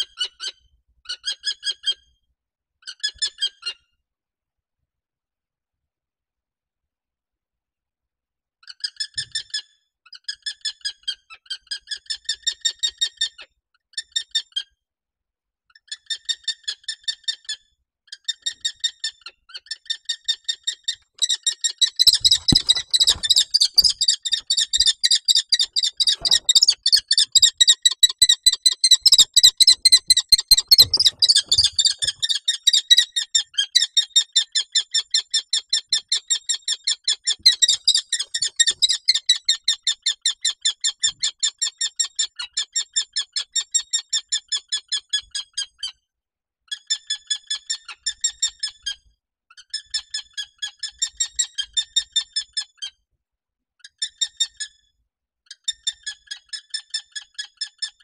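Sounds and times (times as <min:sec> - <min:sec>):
bird thumps and scrapes: 0:22.0 - 0:27.7, 0:29.0 - 0:32.4.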